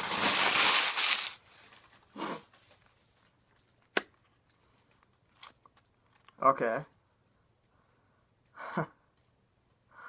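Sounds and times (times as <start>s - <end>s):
package rustle: 0.0s - 6.4s.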